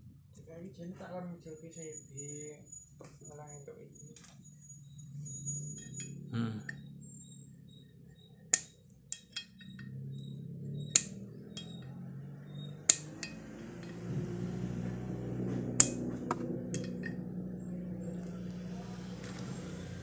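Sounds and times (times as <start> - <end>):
low background hum: 0.0 - 20.0
metallic clinks of hand tools: 8.6 - 10.0, 10.9 - 11.9, 12.5 - 14.1, 16.7 - 17.2.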